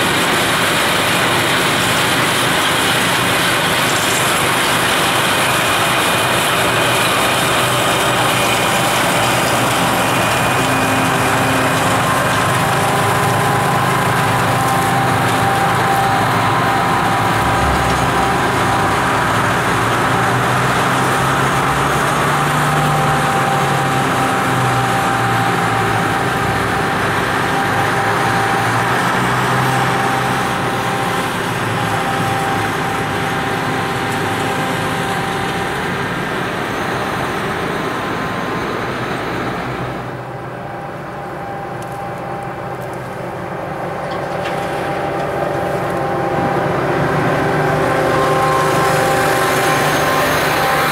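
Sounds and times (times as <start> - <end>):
rotary snow blower machinery: 0.0 - 50.9.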